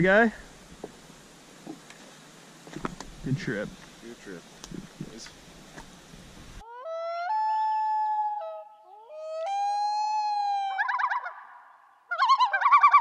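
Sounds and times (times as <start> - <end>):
loon wailing: 6.6 - 11.5
loon warbling tremolo: 6.6 - 13.0.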